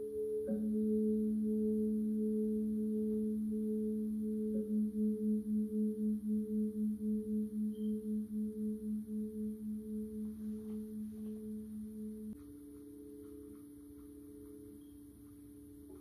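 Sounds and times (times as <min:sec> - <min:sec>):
pulsing electronic bowl tones: 0:00.0 - 0:16.0.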